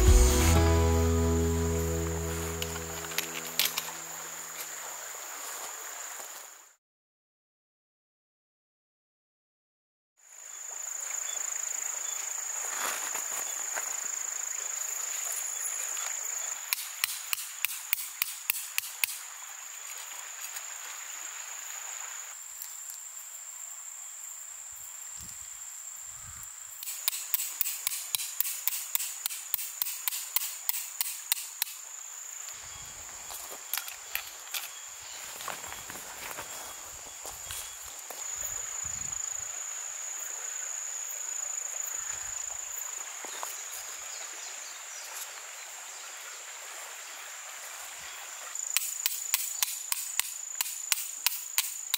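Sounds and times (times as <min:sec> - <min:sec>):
insects buzzing drone: 0:23.4 - 0:43.9
rapid pulsed insect ticking: 0:26.7 - 0:32.4, 0:48.6 - 0:51.9.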